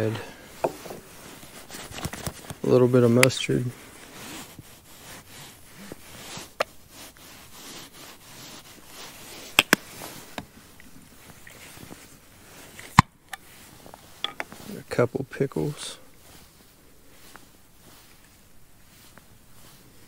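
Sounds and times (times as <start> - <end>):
bottles and jar clicking: 14.2 - 14.5.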